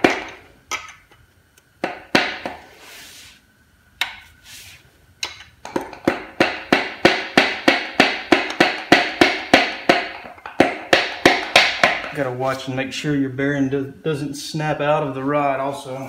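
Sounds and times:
sharp metal taps: 0:05.2 - 0:12.2.

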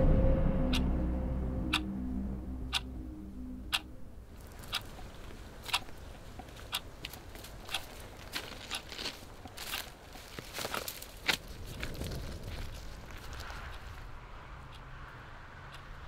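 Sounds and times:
low hum: 0:00.0 - 0:06.4
wristwatch ticking: 0:03.7 - 0:09.9.

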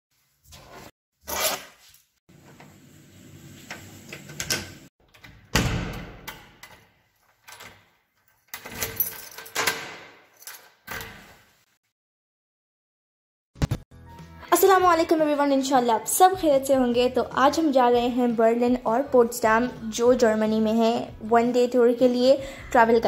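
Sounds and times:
keys rattling: 0:07.4 - 0:10.8
key turning in door lock: 0:07.4 - 0:11.0.

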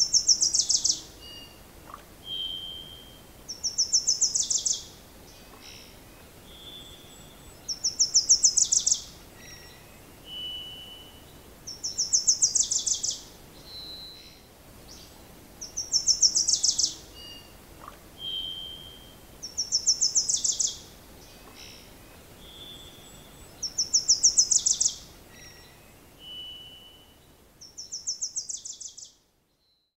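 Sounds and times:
songbird trilling: 0:00.0 - 0:04.9, 0:06.6 - 0:14.4, 0:15.6 - 0:20.8, 0:21.4 - 0:27.0
thin whistled bird notes: 0:00.0 - 0:04.9, 0:15.7 - 0:30.0.

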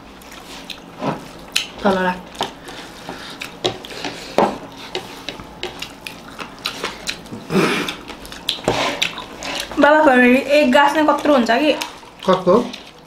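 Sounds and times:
wet chewing smacks: 0:00.2 - 0:04.1, 0:05.3 - 0:09.8, 0:11.2 - 0:13.0
fingers mixing rice on plates: 0:00.2 - 0:09.8.

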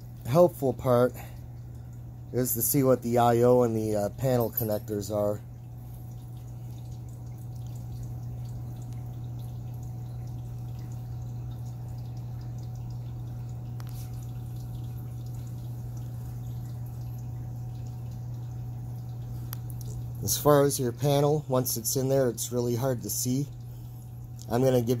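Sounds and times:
faint ticks: 0:16.4 - 0:20.2.

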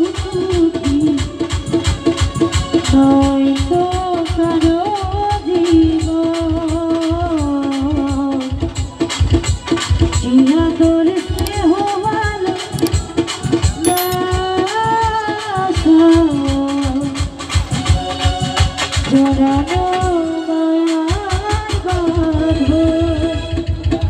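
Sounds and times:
woman singing: 0:00.0 - 0:01.3, 0:10.2 - 0:13.1, 0:19.1 - 0:23.7
keyboard accompaniment: 0:13.8 - 0:14.2.

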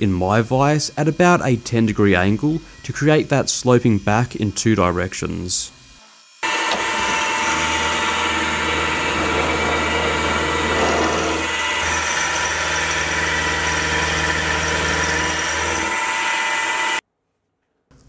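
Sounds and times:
end mill cutting metal: 0:00.0 - 0:05.1, 0:05.8 - 0:17.0
milling machine motor hum: 0:06.4 - 0:17.0.

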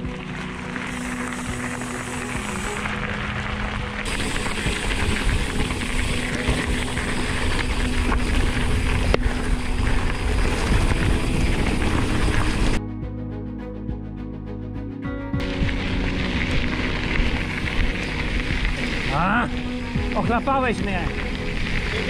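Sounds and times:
mountain bike rumbling on track: 0:00.0 - 0:12.8, 0:15.4 - 0:22.0
wind buffeting microphone: 0:03.5 - 0:12.8.

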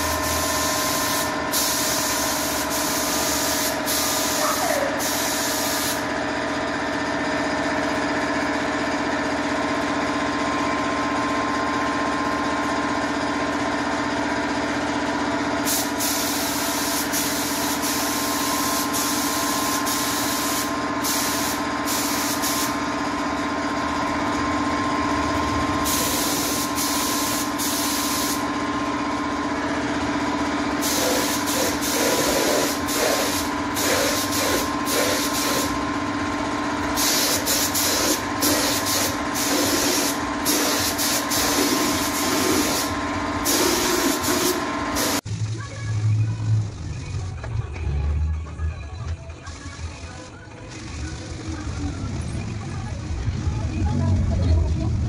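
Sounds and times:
spray gun hissing: 0:00.0 - 0:06.0, 0:15.7 - 0:22.8, 0:25.9 - 0:28.5, 0:30.8 - 0:35.7, 0:37.0 - 0:45.2
air compressor humming: 0:00.0 - 0:45.3.

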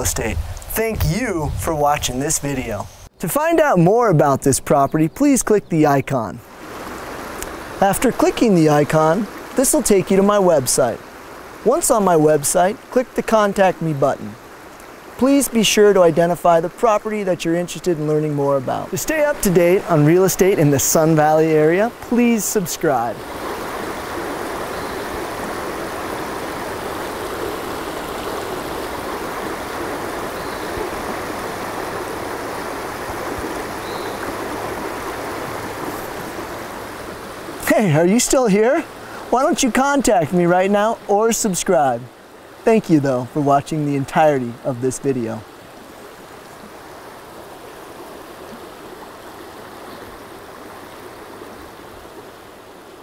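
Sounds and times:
river flowing over stones: 0:06.5 - 0:53.0
river flowing over rocks: 0:21.0 - 0:40.6.

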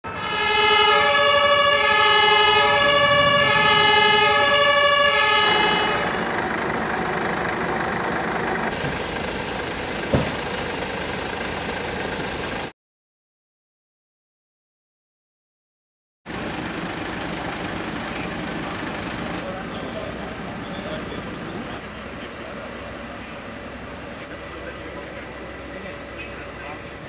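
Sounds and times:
two-tone emergency siren: 0:00.0 - 0:09.8.

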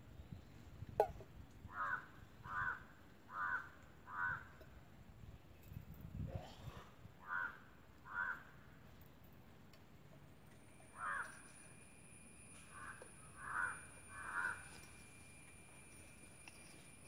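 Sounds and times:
crow cawing: 0:01.7 - 0:04.6, 0:07.2 - 0:08.6, 0:10.9 - 0:11.4, 0:12.7 - 0:14.8.

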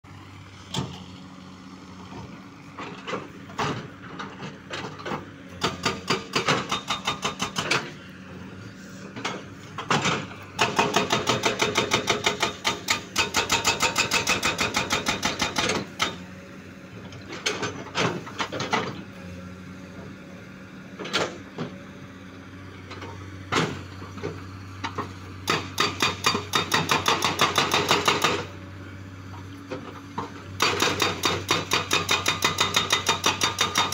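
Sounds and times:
diesel engine humming: 0:00.0 - 0:33.9
hydraulic rock breaker hammering: 0:05.5 - 0:08.0, 0:09.8 - 0:16.2, 0:25.4 - 0:28.5, 0:30.6 - 0:33.9.

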